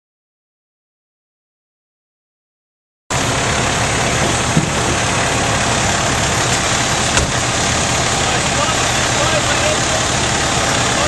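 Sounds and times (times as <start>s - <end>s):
fire engine engine running: 3.1s - 11.0s.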